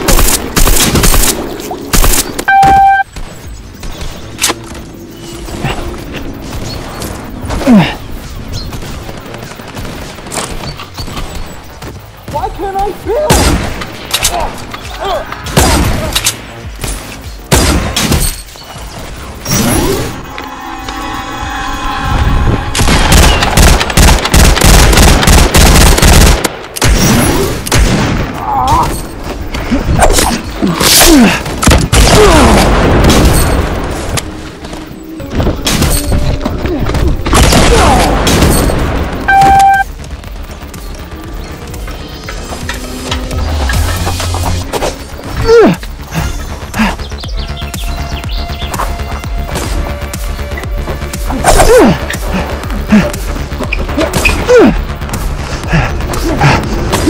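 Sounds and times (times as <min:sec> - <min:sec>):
background music: 0:00.0 - 0:57.0
loud steady beep: 0:02.5 - 0:03.1, 0:39.3 - 0:40.0
rapid automatic gunfire: 0:23.0 - 0:26.5.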